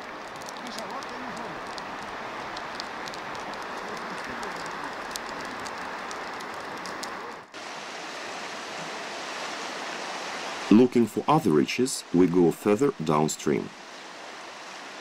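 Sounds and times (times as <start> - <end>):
fast-flowing river rushing: 0.0 - 15.0
faint high clicks: 0.2 - 7.3.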